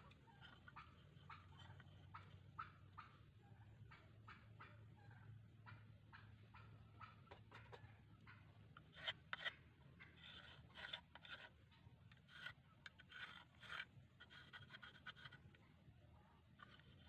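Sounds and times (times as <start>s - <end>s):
pencil scratching on wood: 8.9s - 11.5s, 12.2s - 15.5s, 16.6s - 17.0s.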